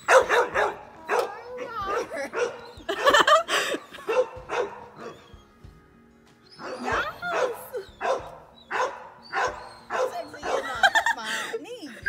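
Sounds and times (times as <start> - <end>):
dog barking: 0.0 - 3.4, 4.0 - 5.4, 6.6 - 11.1
background music: 0.0 - 12.0.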